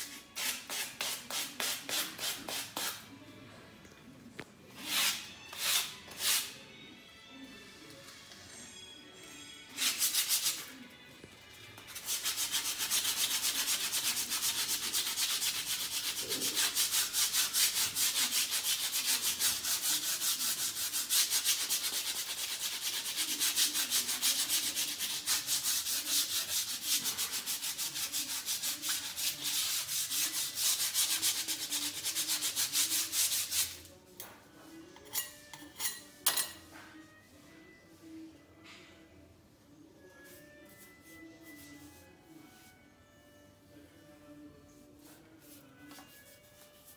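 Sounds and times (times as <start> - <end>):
hand scrubbing a wall: 12.1 - 33.8.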